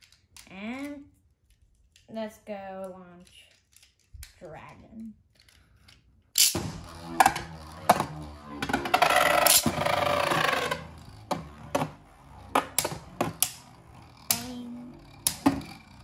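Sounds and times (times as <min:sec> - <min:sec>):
spinning tops clacking: 0:06.4 - 0:16.0
spinning tops grinding rattle: 0:06.4 - 0:16.0.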